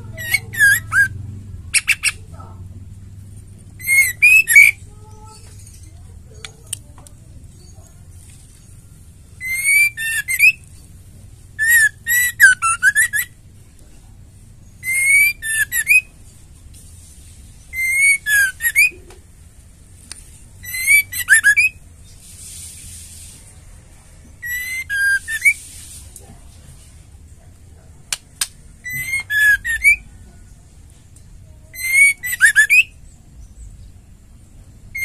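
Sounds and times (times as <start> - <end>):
bird singing whistled notes: 0.1 - 2.2, 3.8 - 5.5, 9.4 - 10.6, 11.6 - 13.4, 14.6 - 16.1, 17.6 - 19.1, 20.6 - 22.2, 24.4 - 25.7, 28.8 - 30.2, 31.8 - 33.9
bird rapid high trills: 3.8 - 4.8, 9.4 - 10.6, 11.6 - 13.3, 20.6 - 21.8, 24.4 - 25.8.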